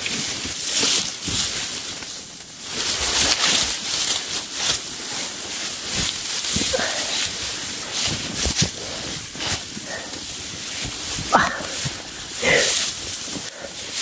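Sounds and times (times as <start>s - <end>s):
tall grass rustling: 0.0s - 14.0s
soft footfalls: 5.5s - 14.0s.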